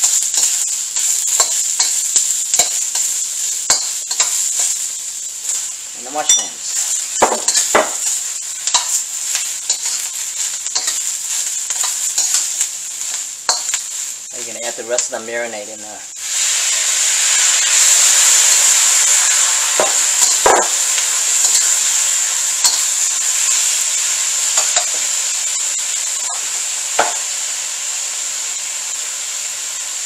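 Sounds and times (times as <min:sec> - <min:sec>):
marinade sizzling in a wok: 0:00.0 - 0:30.0
metal spatula scraping a wok: 0:09.6 - 0:12.6.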